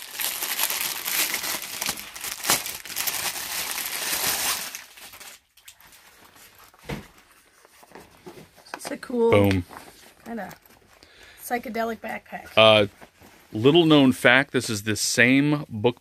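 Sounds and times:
plastic bag crinkling: 0.0s - 7.8s.

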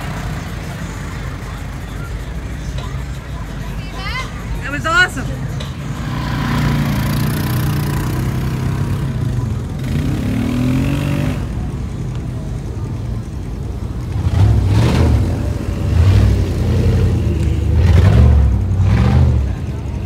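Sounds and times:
engine revving roughly: 6.0s - 11.6s, 14.1s - 19.8s.

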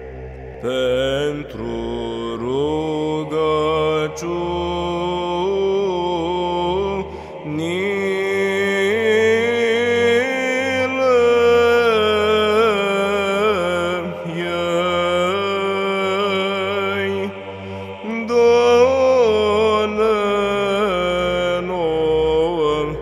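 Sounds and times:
person chanting ornamented melody: 0.0s - 23.0s.

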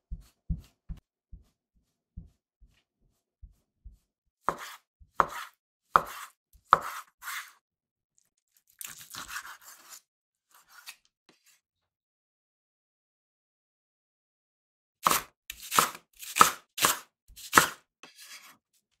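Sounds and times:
knife chopping on wooden board: 2.2s - 7.5s, 15.0s - 18.4s
knife slicing scrape: 2.7s - 7.6s, 8.8s - 11.6s, 15.0s - 18.6s.

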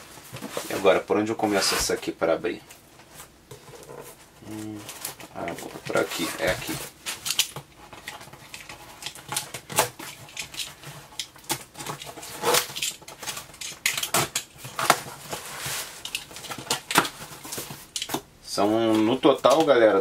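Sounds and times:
box cutter slitting packing tape: 11.2s - 15.1s.

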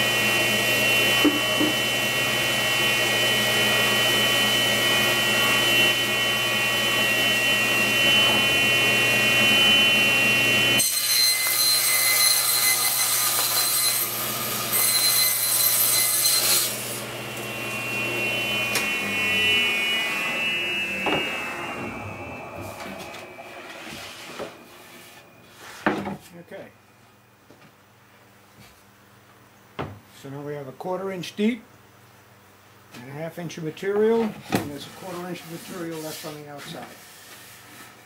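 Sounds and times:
table saw cutting plywood: 0.0s - 26.2s.

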